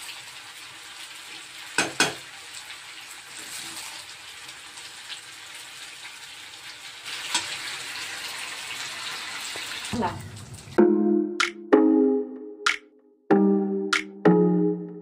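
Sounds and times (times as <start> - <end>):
rice sizzling in metal pan: 0.0 - 10.1.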